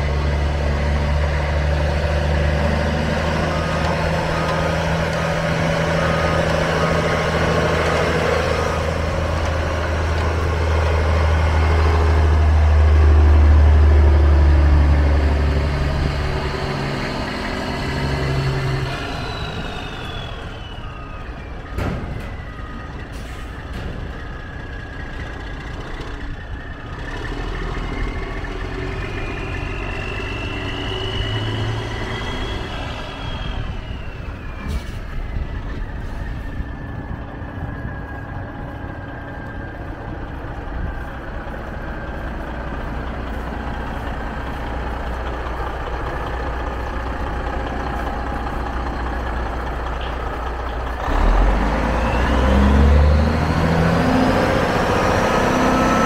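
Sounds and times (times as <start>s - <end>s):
diesel truck engine running: 0.0s - 56.0s.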